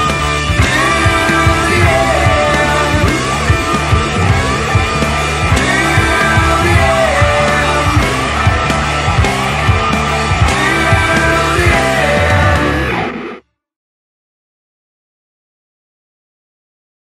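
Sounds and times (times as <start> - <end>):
rock band playing: 0.0 - 13.4.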